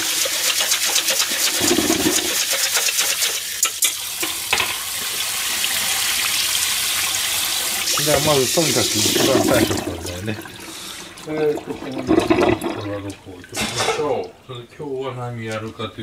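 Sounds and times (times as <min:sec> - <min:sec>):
water pouring into sink: 0:00.0 - 0:14.4
tap water splashing into bowl: 0:00.6 - 0:05.2.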